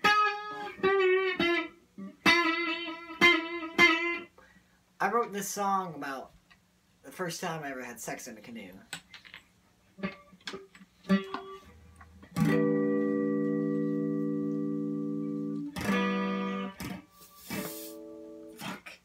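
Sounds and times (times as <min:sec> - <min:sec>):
electric guitar notes: 0:00.0 - 0:04.3, 0:10.0 - 0:18.8.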